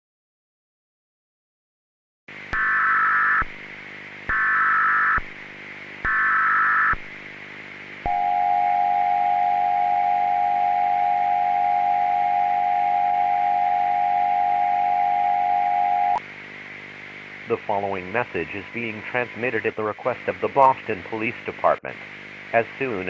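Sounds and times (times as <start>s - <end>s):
faint hiss and hum: 2.3s - 23.0s
two-tone attention signal: 8.1s - 16.2s.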